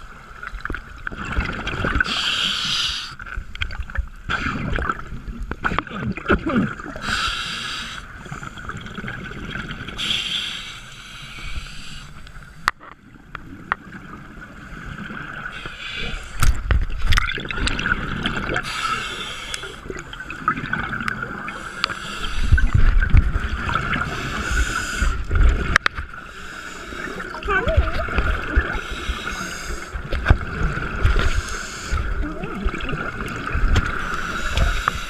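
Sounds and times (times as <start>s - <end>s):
exhaled bubbles gurgling: 0.0s - 12.1s, 13.0s - 35.0s
scuba regulator breathing: 2.0s - 3.2s, 7.0s - 8.7s, 10.0s - 12.6s, 15.5s - 16.6s, 18.6s - 20.5s, 21.5s - 22.9s, 24.0s - 25.3s, 26.2s - 27.3s, 28.7s - 30.1s, 31.0s - 32.1s, 33.9s - 35.0s.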